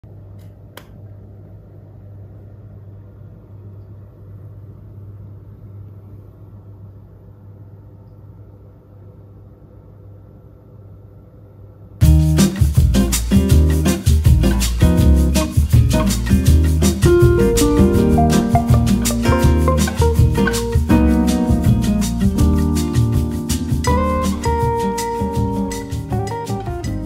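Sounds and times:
loud music: 0:15.7 - 0:21.6
steady low hum: 0:17.0 - 0:21.3
faint high steady tones: 0:17.2 - 0:20.8.

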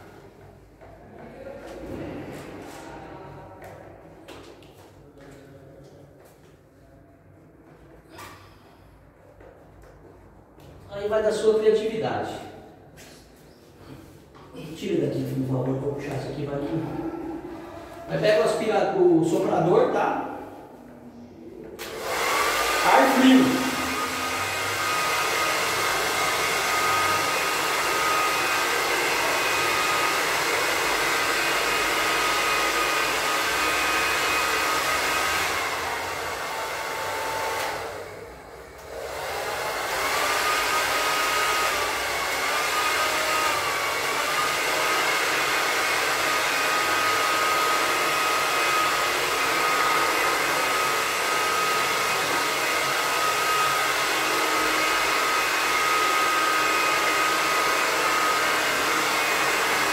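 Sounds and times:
heat gun blowing air: 0:21.8 - 0:59.9.

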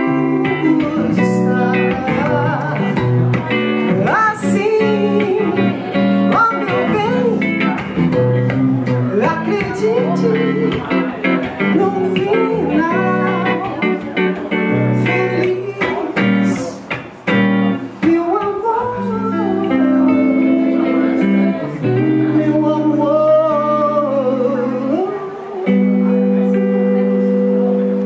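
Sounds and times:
woman singing into a microphone: 0:00.0 - 0:17.0, 0:18.0 - 0:27.8
instrumental backing music: 0:00.0 - 0:28.0.

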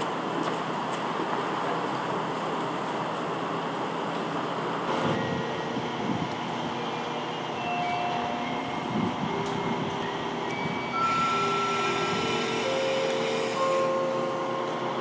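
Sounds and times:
diesel railcar humming: 0:00.0 - 0:15.0
thin steady tones: 0:05.1 - 0:15.0.

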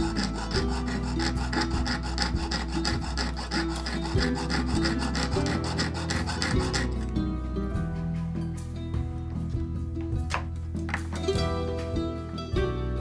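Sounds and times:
saw rasping through wire: 0:00.0 - 0:07.2.

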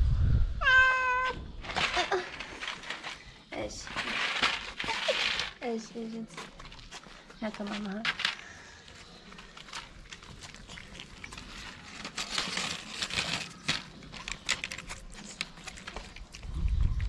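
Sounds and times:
cats crunching dry kibble: 0:01.6 - 0:17.0.

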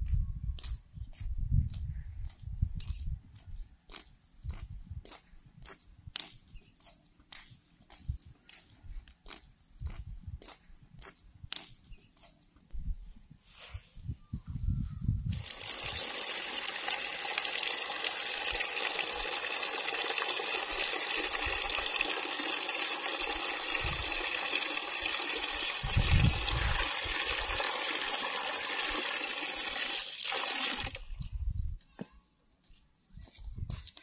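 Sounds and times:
tap water pouring into basin: 0:15.3 - 0:31.2.

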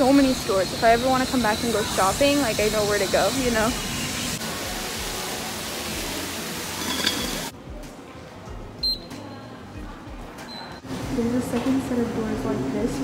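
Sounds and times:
street noise hiss: 0:00.0 - 0:07.5.

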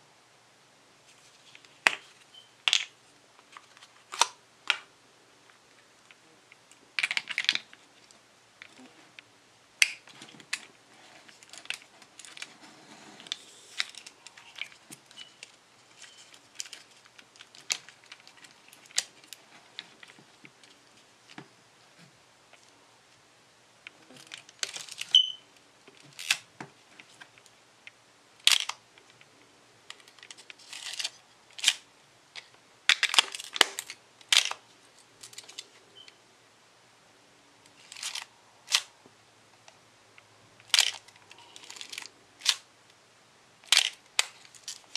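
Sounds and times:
film rustling and scraping: 0:10.0 - 0:22.7, 0:23.9 - 0:25.2, 0:29.9 - 0:31.8, 0:32.4 - 0:36.1, 0:37.7 - 0:38.9, 0:40.6 - 0:42.6.

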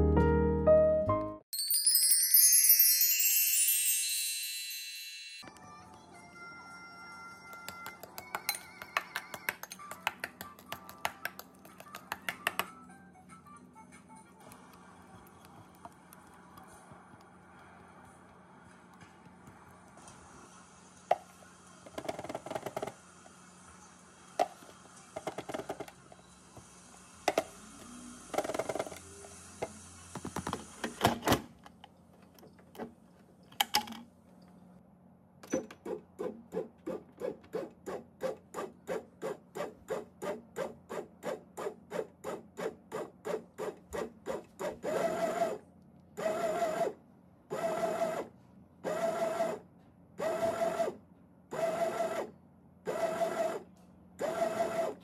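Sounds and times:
bread machine kneading motor: 0:35.7 - 0:55.0.

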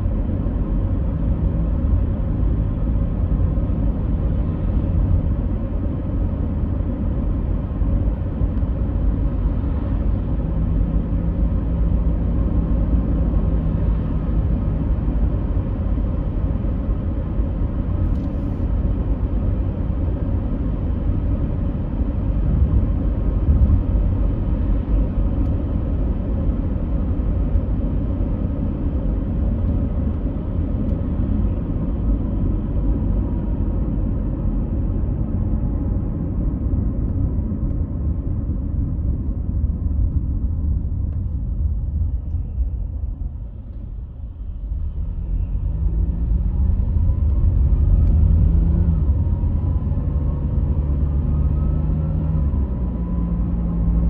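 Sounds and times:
steady low rumbling: 0:21.4 - 0:51.7.

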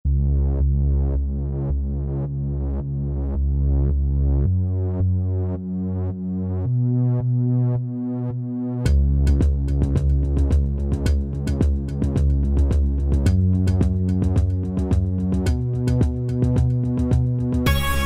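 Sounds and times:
held bass line: 0:00.0 - 0:18.0
repeating synthesizer note: 0:17.7 - 0:18.0.

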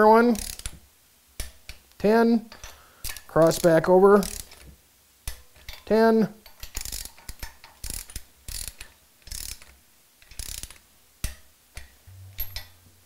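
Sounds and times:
ratchet wrench clicking: 0:00.3 - 0:00.7, 0:02.6 - 0:04.6, 0:06.5 - 0:12.8.

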